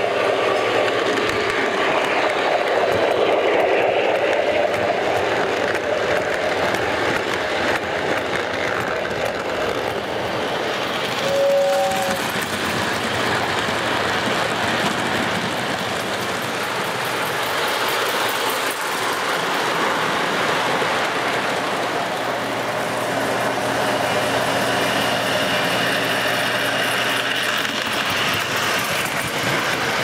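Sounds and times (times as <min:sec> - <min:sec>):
model trains rumbling and rattling: 0:00.0 - 0:30.0
model locomotive horn: 0:11.2 - 0:12.3.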